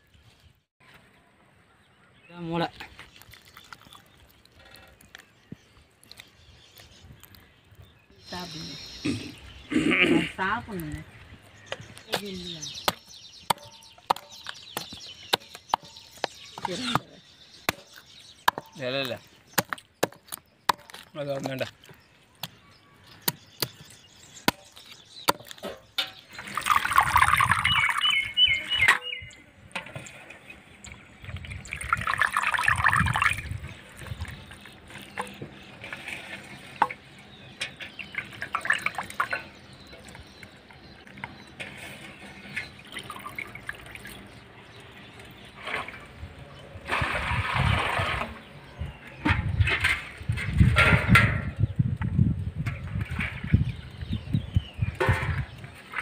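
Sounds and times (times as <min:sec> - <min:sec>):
water splashing and pouring: 0:03.0 - 0:04.8, 0:26.2 - 0:28.4, 0:29.8 - 0:37.2, 0:37.9 - 0:40.4, 0:41.6 - 0:48.5
water trickling: 0:03.1 - 0:05.2, 0:26.2 - 0:28.6, 0:30.8 - 0:35.4, 0:37.9 - 0:40.4, 0:42.6 - 0:46.2.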